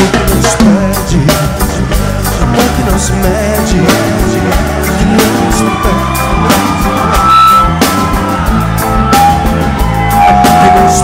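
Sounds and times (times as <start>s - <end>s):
live rock band playing: 0.0s - 11.0s
electric guitar lead notes: 2.3s - 11.0s.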